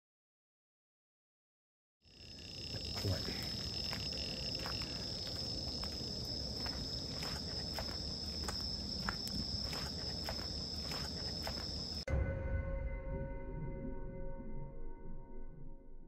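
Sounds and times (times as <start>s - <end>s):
high insect trill: 2.0s - 12.1s
footsteps crunching on leafy path: 2.9s - 12.0s.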